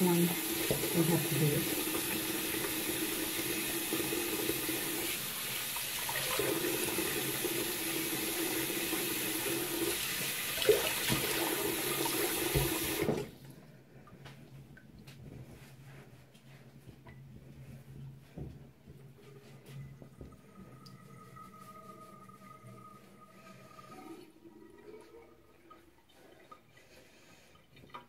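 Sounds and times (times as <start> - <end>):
tap water running into sink: 0.0 - 13.3.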